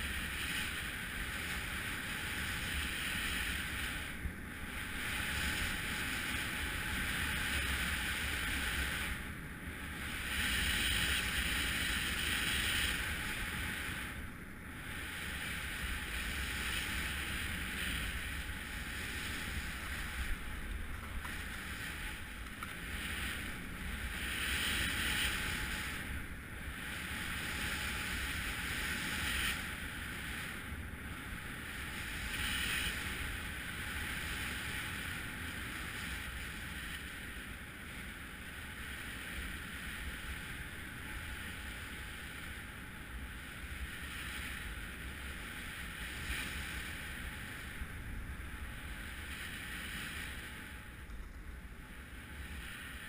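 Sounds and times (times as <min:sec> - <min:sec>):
wind on microphone: 0:00.0 - 0:53.0
skis scraping over snow: 0:14.8 - 0:30.4.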